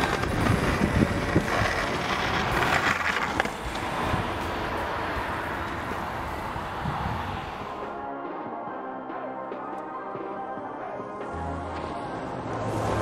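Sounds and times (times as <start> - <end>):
skateboard wheels rumbling on concrete: 0.0 - 7.8
road traffic passing: 0.0 - 8.6, 11.3 - 13.0.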